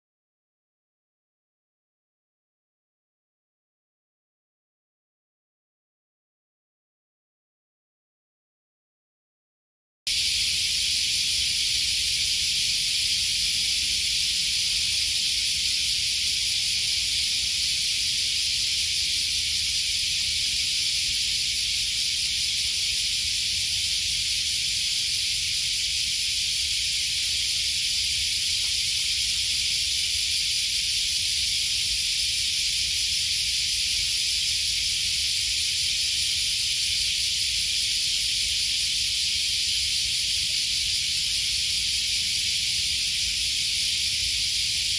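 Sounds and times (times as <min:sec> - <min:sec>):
cicadas buzzing: 0:10.1 - 0:44.9.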